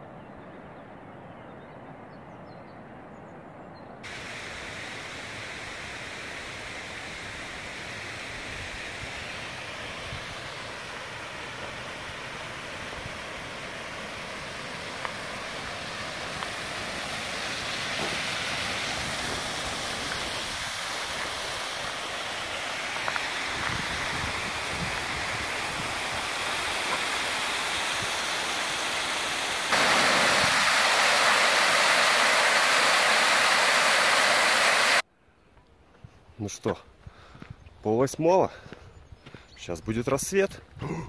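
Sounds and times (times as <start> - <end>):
waterfall rushing: 4.0 - 35.0.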